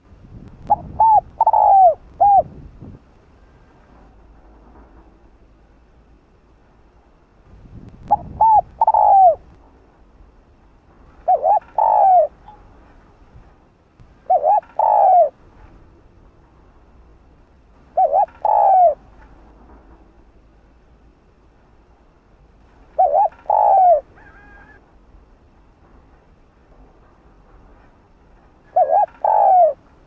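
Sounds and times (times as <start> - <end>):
dove cooing: 0.7 - 2.6, 8.1 - 9.4, 11.2 - 12.4, 14.2 - 15.4, 17.9 - 19.0, 23.0 - 24.8, 28.6 - 29.9.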